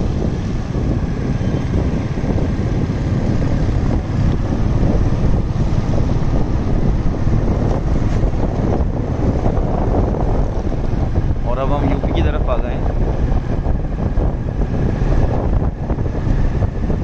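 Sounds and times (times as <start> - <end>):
motorcycle engine running: 0.0 - 17.0
wind rumbling on microphone: 0.0 - 17.0.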